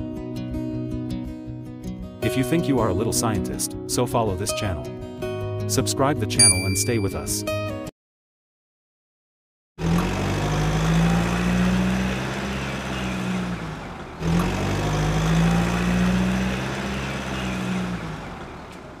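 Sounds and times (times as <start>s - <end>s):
vehicle engine humming: 9.8s - 19.0s.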